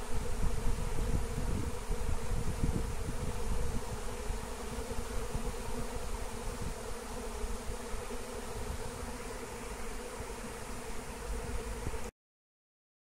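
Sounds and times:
bees buzzing: 0.0 - 12.1.

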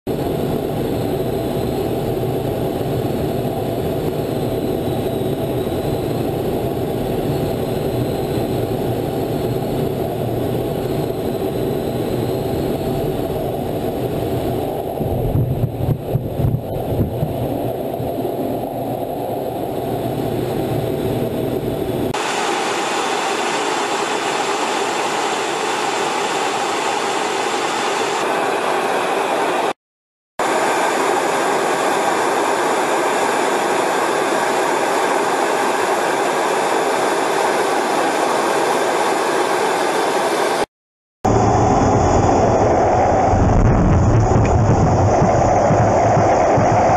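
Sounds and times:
jet engine and airflow noise: 0.1 - 29.8, 30.4 - 46.9
hissing jet noise: 0.2 - 29.8, 41.3 - 46.9.

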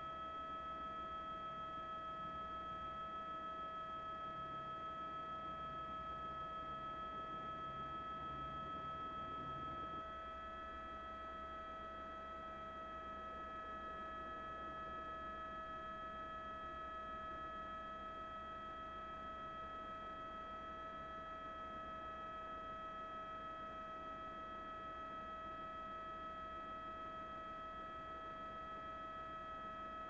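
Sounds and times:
electronic whine: 0.0 - 17.7
faint low hum: 0.0 - 19.1.

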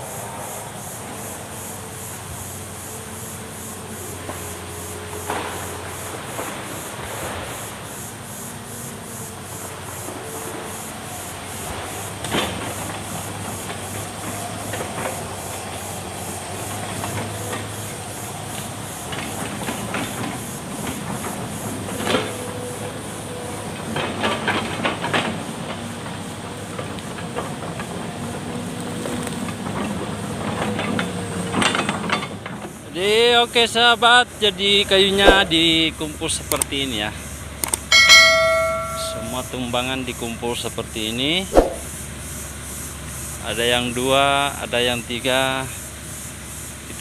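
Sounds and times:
excavator engine and hydraulics: 0.0 - 47.0
sharp metal knocks and clanks: 37.9 - 39.6.

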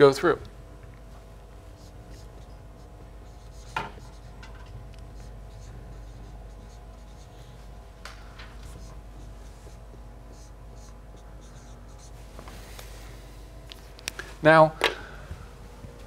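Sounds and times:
marker scratching on whiteboard: 1.7 - 4.5, 5.1 - 7.8, 8.6 - 12.2.

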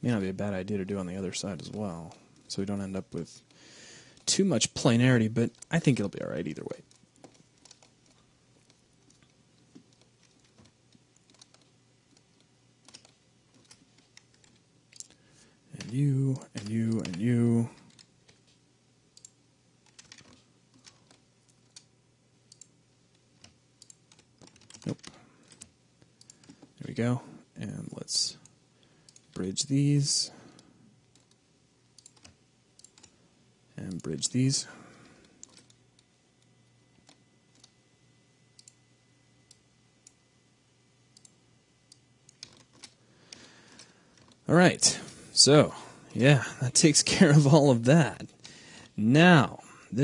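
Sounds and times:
faint steady hum: 0.0 - 50.0
keyboard and mouse clicks: 6.7 - 15.2, 15.8 - 17.2, 17.8 - 18.6, 19.2 - 21.9, 22.5 - 26.7, 29.1 - 29.4, 30.5 - 31.4, 32.0 - 33.2, 35.2 - 37.8, 38.6 - 38.8, 41.2 - 44.4.

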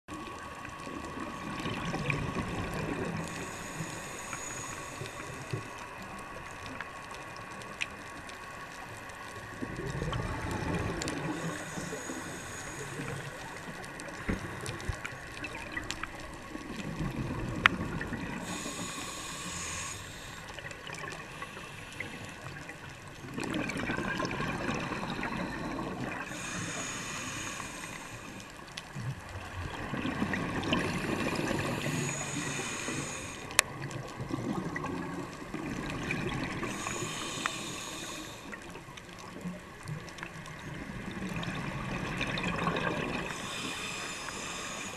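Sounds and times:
regulator exhaled bubbles gurgling: 0.9 - 4.3, 9.5 - 19.9, 20.6 - 28.0, 28.9 - 44.8
regulator inhale hiss: 2.6 - 6.8, 10.2 - 16.3, 18.0 - 23.0, 24.6 - 29.0, 30.7 - 33.8, 36.4 - 38.9, 43.2 - 44.9.

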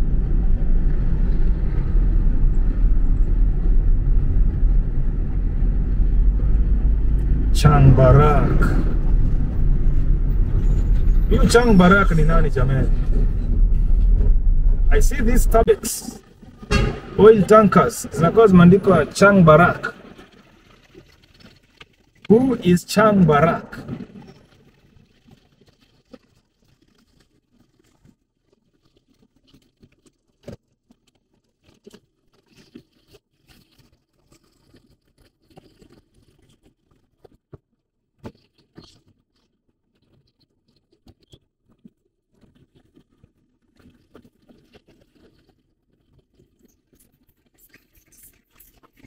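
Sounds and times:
low in-car hum: 0.0 - 20.4.

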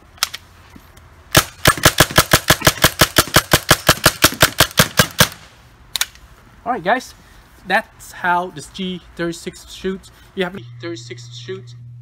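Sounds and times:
paintball marker rapid shots: 1.3 - 5.5.

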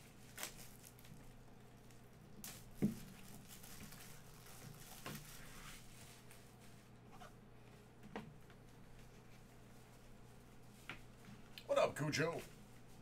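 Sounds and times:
plastic wrap crinkling: 0.0 - 6.5.

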